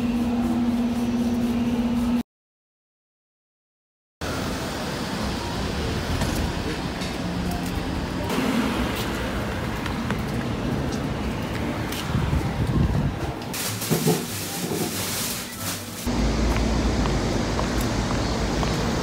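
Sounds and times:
passing road traffic: 4.2s - 14.8s, 16.0s - 19.0s.

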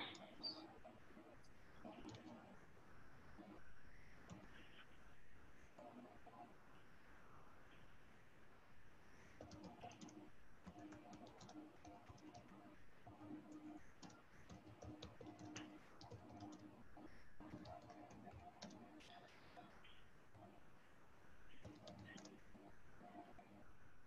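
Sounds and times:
typing on computer keyboard: 1.8s - 2.4s, 9.4s - 19.7s, 21.6s - 23.5s.

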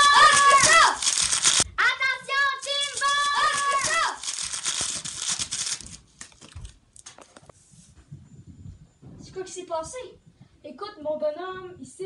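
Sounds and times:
child calling out: 0.0s - 1.1s, 1.8s - 4.2s
loud crackling noise: 0.0s - 1.7s, 2.6s - 5.9s.

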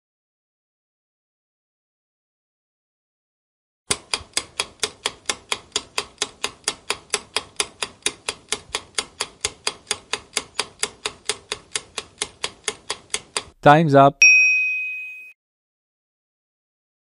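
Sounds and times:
clock-like timer ticks: 3.9s - 13.6s.

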